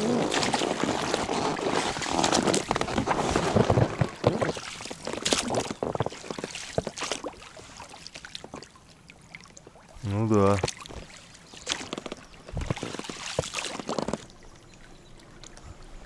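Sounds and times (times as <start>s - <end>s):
boat knocking and scraping: 0.0s - 7.3s, 10.3s - 14.6s
water splashing: 0.0s - 16.0s.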